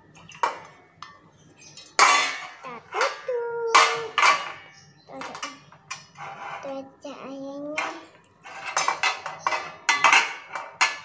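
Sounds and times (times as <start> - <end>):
metal grill plate clattering: 1.8 - 6.6, 7.7 - 11.0.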